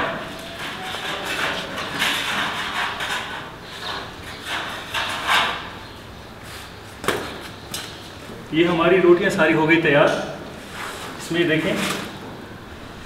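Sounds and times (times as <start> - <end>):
metal rods scraping oven wall: 0.0 - 6.0.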